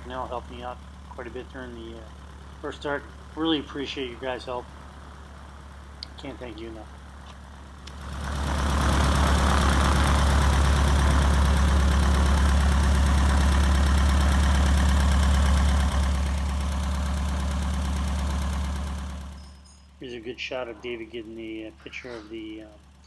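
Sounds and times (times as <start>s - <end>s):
aircraft piston engine running: 5.8s - 19.4s.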